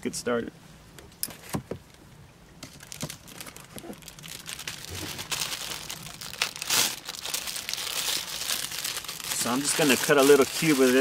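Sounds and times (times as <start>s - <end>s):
plastic wrapping crinkling: 2.7s - 11.0s.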